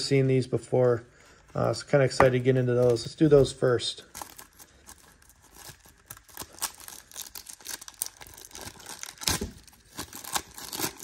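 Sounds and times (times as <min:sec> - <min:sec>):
plastic wrapper crinkling and tearing: 0:02.7 - 0:11.0.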